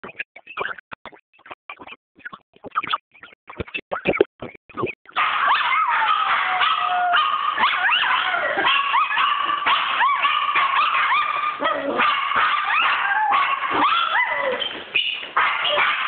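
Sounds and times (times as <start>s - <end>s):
dog howling: 5.2s - 14.7s
dog yelping: 5.2s - 16.0s.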